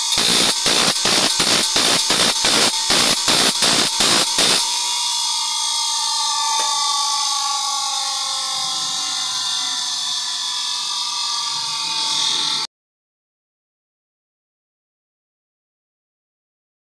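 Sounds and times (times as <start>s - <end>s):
bench grinder whining: 0.0s - 12.7s.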